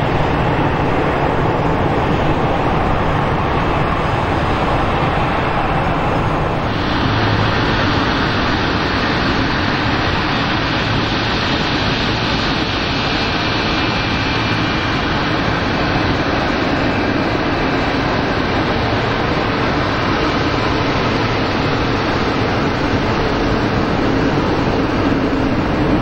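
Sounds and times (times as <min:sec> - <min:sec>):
jet engines taxiing: 0:00.0 - 0:26.0.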